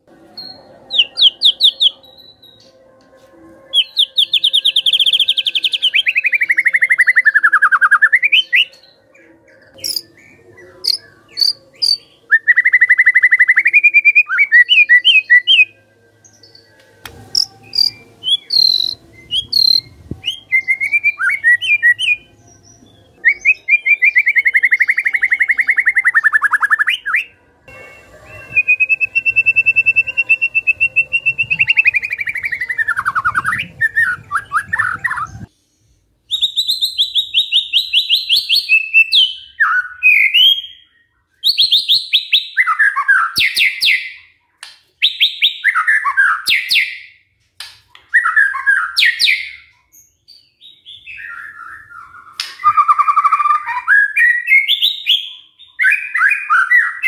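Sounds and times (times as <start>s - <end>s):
bird singing rattling trills: 9.6s - 13.5s, 17.3s - 26.7s
sharp whistled notes: 16.4s - 22.3s, 23.2s - 35.5s.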